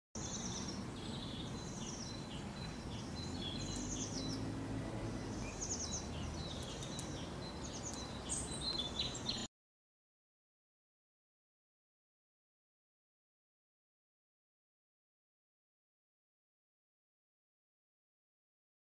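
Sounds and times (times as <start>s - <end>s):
songbirds chirping: 0.2s - 9.5s.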